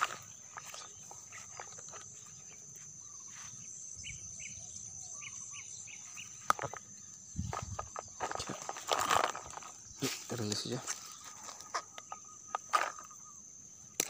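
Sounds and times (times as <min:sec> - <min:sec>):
footsteps rustling through grass: 0:00.0 - 0:03.8, 0:07.4 - 0:12.0
insects chirring: 0:00.0 - 0:14.0.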